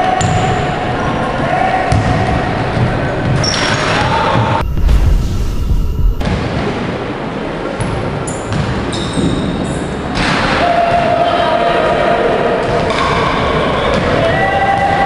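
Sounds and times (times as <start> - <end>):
players shouting and cheering: 10.5 - 15.0.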